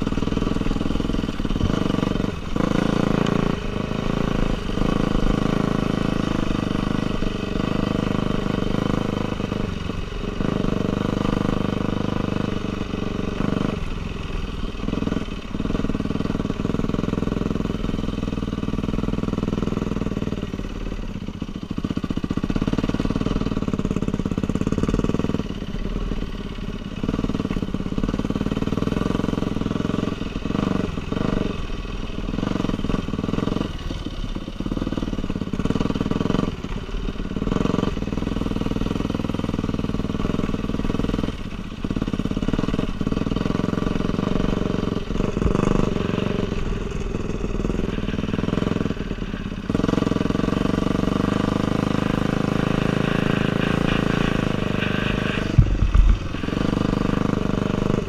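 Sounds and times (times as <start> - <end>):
dirt bike engine revving: 0.0 - 12.5, 37.3 - 58.0.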